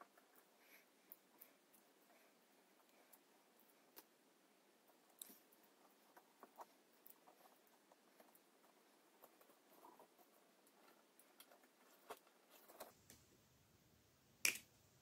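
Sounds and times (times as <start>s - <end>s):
fingers handling a wire coil: 4.8s - 13.0s.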